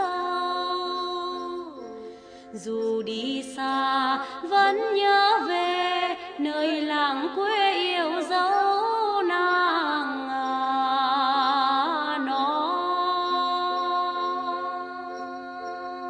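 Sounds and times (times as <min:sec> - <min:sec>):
musical accompaniment: 0:00.0 - 0:04.5
woman singing folk song: 0:00.0 - 0:16.0.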